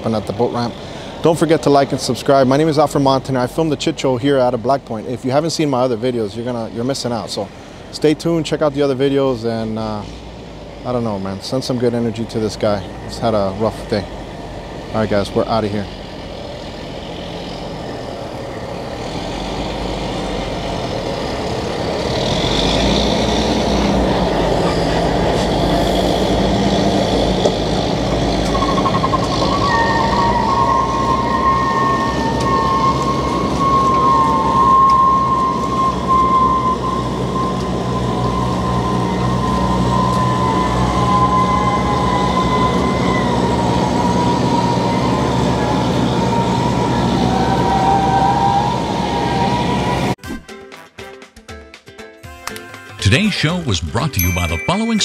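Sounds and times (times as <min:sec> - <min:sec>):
engine noise: 0:00.0 - 0:50.2
high wavering whine: 0:28.2 - 0:45.7.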